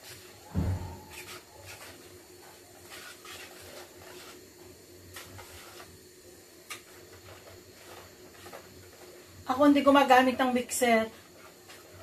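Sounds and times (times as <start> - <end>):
whisk scraping against bowl: 1.0 - 4.4, 5.1 - 6.0
whisk swishing in a bowl: 1.1 - 6.0.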